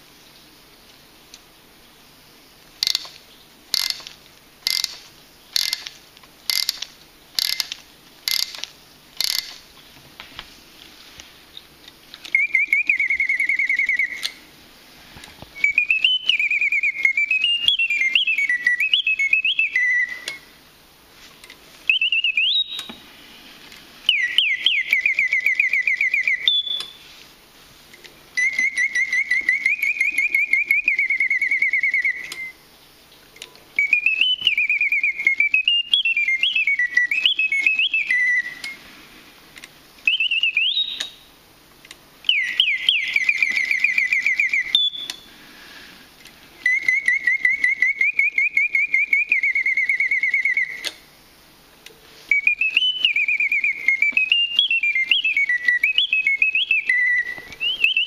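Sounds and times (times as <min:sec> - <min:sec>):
faint clockwork whirr: 0:02.2 - 0:10.0
mechanical bird whistling trills: 0:02.8 - 0:09.6, 0:12.2 - 0:14.4, 0:15.6 - 0:20.6, 0:21.8 - 0:23.0, 0:24.0 - 0:27.1, 0:28.3 - 0:32.6, 0:33.8 - 0:38.8, 0:40.0 - 0:41.3, 0:42.2 - 0:45.3, 0:46.6 - 0:51.0, 0:52.3 - 0:58.0.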